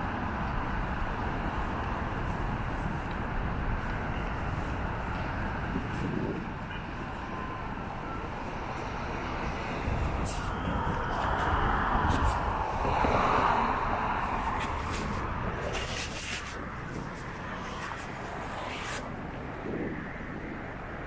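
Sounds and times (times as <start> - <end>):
traffic noise: 0.0 - 21.0.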